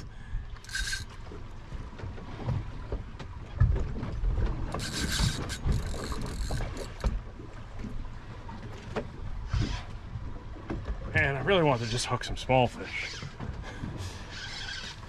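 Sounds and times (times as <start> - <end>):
wind and water rumble: 0.0 - 15.0
spinning reel gears clicking: 0.6 - 1.2, 4.7 - 7.1, 14.3 - 15.0.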